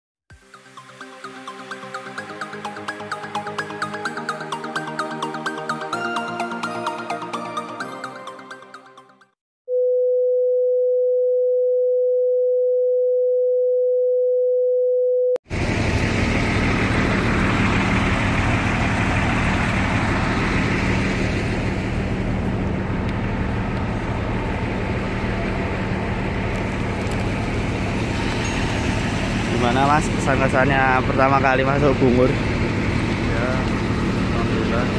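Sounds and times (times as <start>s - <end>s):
bus engines running: 15.5s - 34.9s.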